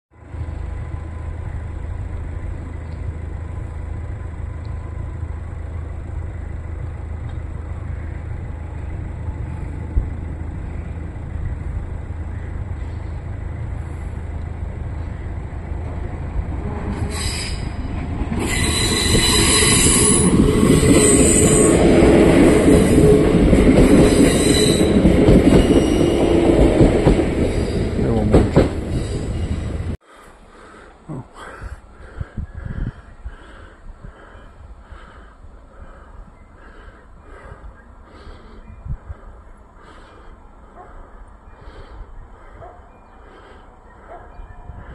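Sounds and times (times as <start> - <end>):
electric train rumbling past: 0.1 - 44.9
high-pitched train squeal: 16.6 - 28.1, 28.8 - 30.0.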